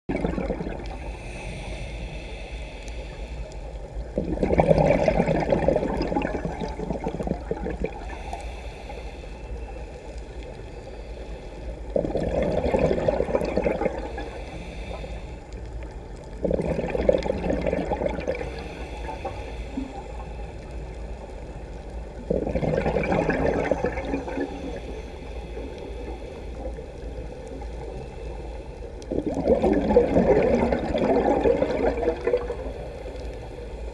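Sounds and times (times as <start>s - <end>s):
regulator exhaust bubbles gurgling: 0.1s - 1.0s, 4.0s - 8.2s, 11.9s - 14.3s, 16.4s - 18.8s, 22.1s - 24.9s, 29.0s - 33.0s.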